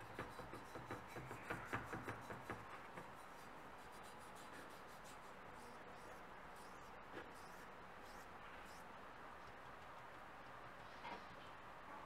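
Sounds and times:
brush scrubbing metal: 0:00.0 - 0:08.8.

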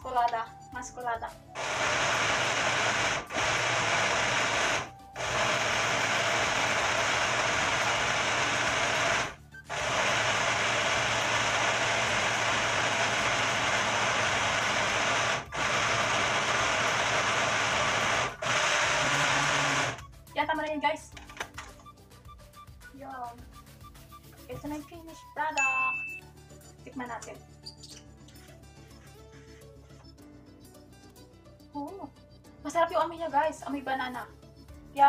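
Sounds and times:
blender motor running: 0:01.6 - 0:20.0.

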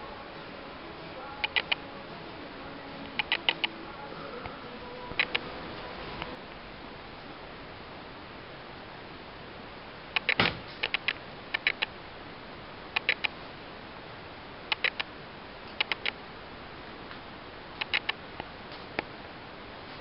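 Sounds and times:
steady hiss: 0:00.0 - 0:20.0
sharp clicks: 0:01.4 - 0:01.9, 0:03.0 - 0:03.8, 0:05.2 - 0:05.5, 0:10.1 - 0:11.9, 0:12.9 - 0:13.4, 0:14.7 - 0:15.1, 0:15.7 - 0:16.2, 0:17.8 - 0:19.1.

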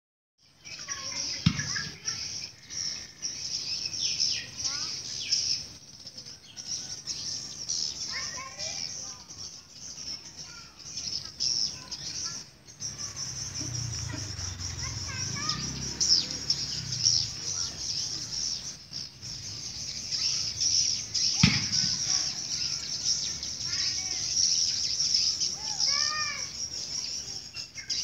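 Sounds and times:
sharp knock: 0:01.4 - 0:01.8, 0:21.4 - 0:22.1
swiftlets twittering: 0:07.4 - 0:27.2.

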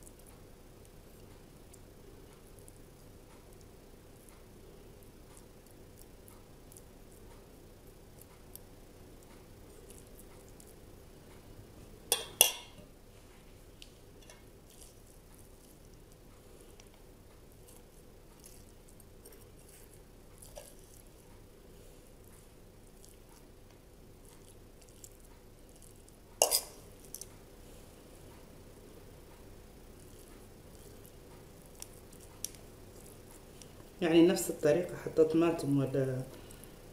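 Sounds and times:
spoon clinking on metal bowl: 0:12.1 - 0:12.8, 0:26.4 - 0:27.2
squishing stuffing: 0:14.6 - 0:28.1, 0:29.4 - 0:36.9.

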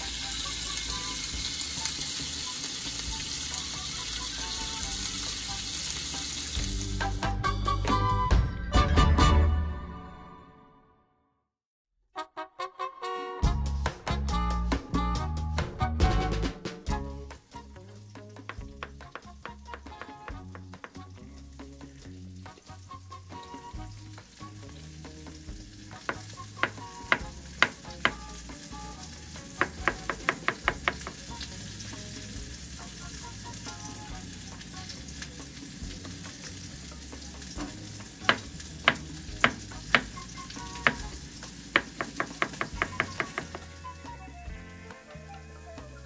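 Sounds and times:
knife tapping on cutting board: 0:18.4 - 0:21.0, 0:26.0 - 0:28.3, 0:29.6 - 0:31.3, 0:38.2 - 0:40.2, 0:40.8 - 0:41.1, 0:41.8 - 0:43.7.

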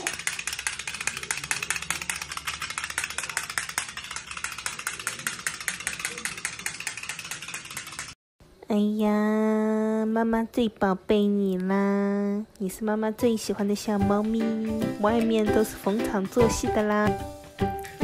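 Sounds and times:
puppy scrambling on stone floor: 0:00.0 - 0:08.2
toy clicking and rattling: 0:00.0 - 0:08.2.

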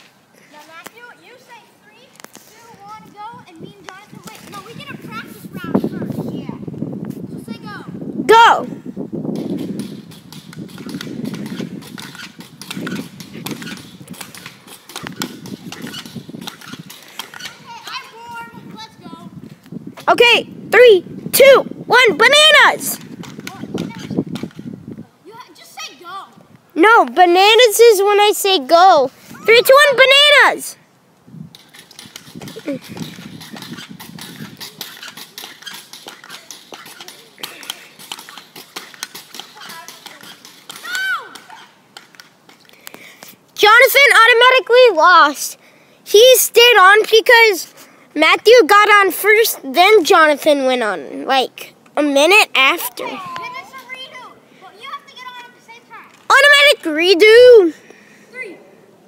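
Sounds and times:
pogo sticks knocking on asphalt: 0:02.1 - 0:06.1, 0:09.2 - 0:18.7, 0:22.3 - 0:25.0, 0:31.4 - 0:44.5.

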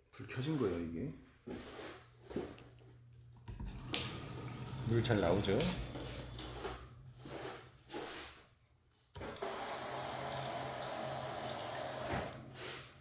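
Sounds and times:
shower spraying water on floor: 0:03.8 - 0:08.4, 0:09.4 - 0:13.0.

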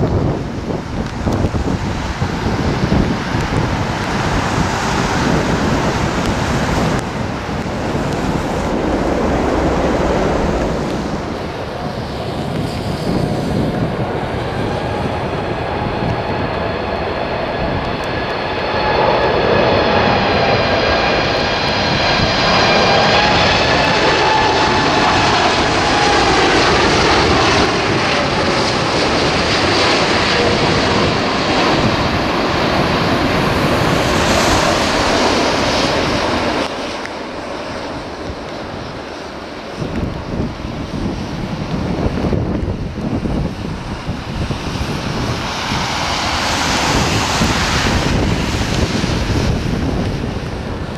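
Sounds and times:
jet engines passing overhead: 0:00.0 - 0:50.9
steady rushing noise: 0:00.0 - 0:50.9.

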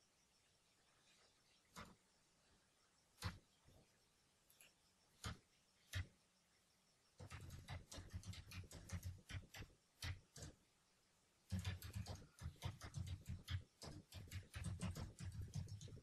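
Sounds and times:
keyboard typing clicks: 0:07.2 - 0:10.6, 0:11.5 - 0:16.0.

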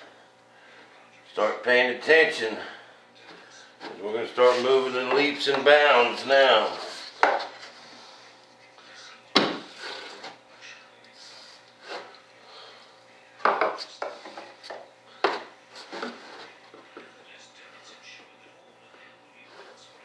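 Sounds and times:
knocks and scrapes on wood: 0:06.7 - 0:07.7, 0:13.5 - 0:16.5.

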